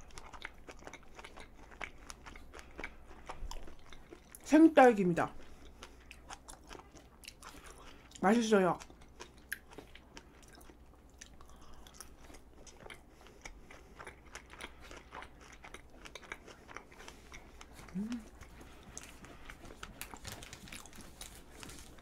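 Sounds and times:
wet chewing mouth clicks: 8.8s - 22.0s
person humming: 17.8s - 18.4s.

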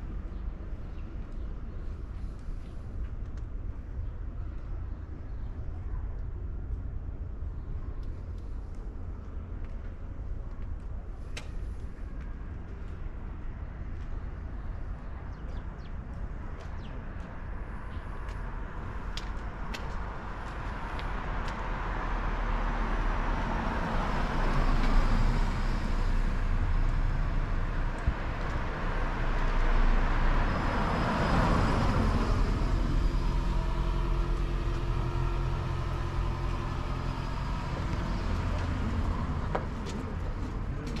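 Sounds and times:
steady engine hum: 0.0s - 41.0s
car driving past: 21.6s - 40.7s.

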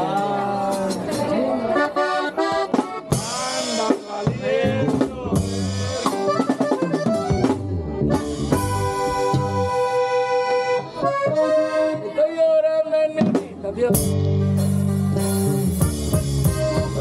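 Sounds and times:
accordion melody: 1.2s - 4.2s, 5.4s - 12.5s, 13.9s - 17.0s
drum kit beat: 2.4s - 10.4s, 13.2s - 17.0s.

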